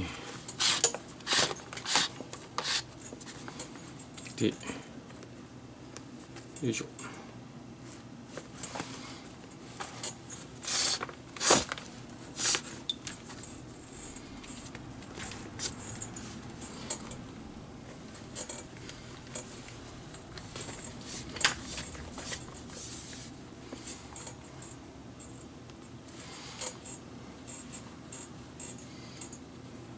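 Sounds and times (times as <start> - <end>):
lace sliding on leather: 0.6 - 2.9.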